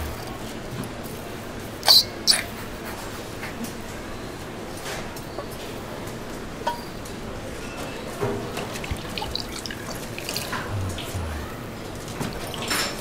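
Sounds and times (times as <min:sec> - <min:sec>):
stock pouring into pot: 0:08.7 - 0:10.7
wet clicks and drips: 0:08.7 - 0:10.7.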